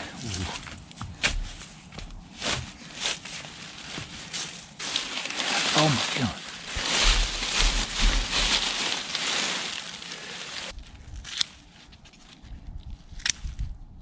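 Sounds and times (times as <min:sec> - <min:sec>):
hands rustling in soil: 0:00.0 - 0:12.6
dry leaves rustling and crackling: 0:02.3 - 0:12.4.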